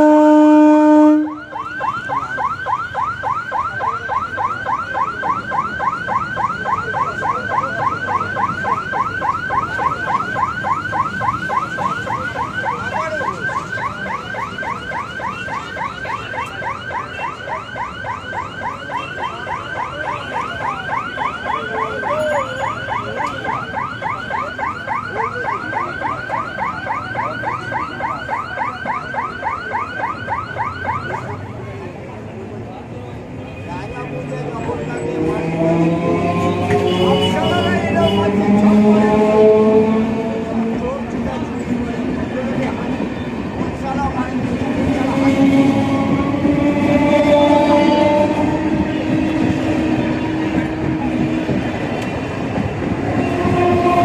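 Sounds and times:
train horn blast: 0.0s - 1.4s, 36.4s - 40.6s, 45.1s - 51.5s, 53.0s - 54.0s
passing train rumble: 31.4s - 54.0s.

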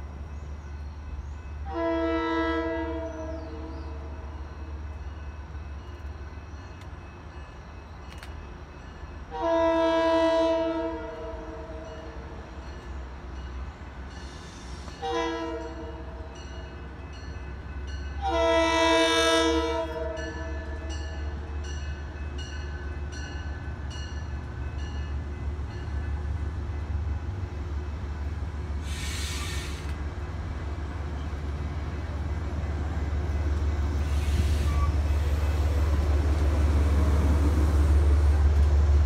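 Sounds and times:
train rumble: 0.0s - 39.0s
train horn blasts: 1.6s - 4.4s, 9.3s - 12.4s, 14.3s - 16.4s, 18.2s - 21.2s.

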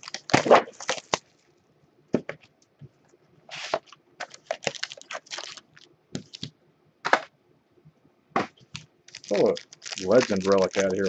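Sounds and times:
packaging clicks and crinkles: 0.0s - 1.5s, 3.5s - 6.5s, 8.6s - 11.0s.

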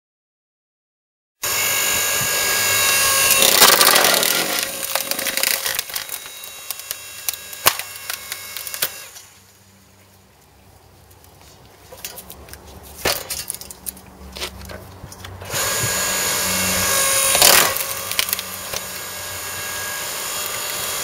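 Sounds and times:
log splitter motor running: 1.4s - 9.4s, 15.4s - 21.0s
wood cracking and splintering: 2.9s - 9.3s, 12.0s - 15.6s, 16.8s - 21.0s.

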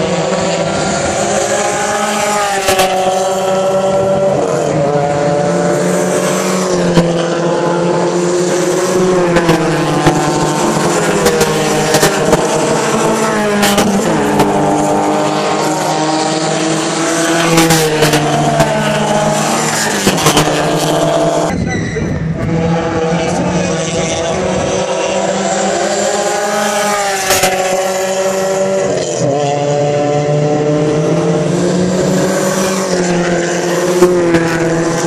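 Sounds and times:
race car engines passing: 0.0s - 35.0s.

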